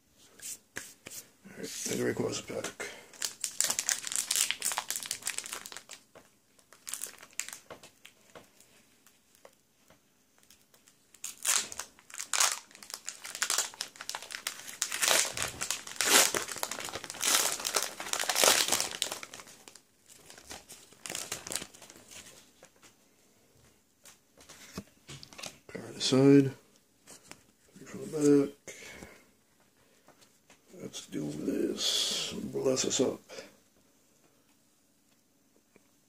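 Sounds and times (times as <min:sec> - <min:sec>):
foil wrapper crinkling: 0:03.1 - 0:09.6, 0:10.4 - 0:22.5.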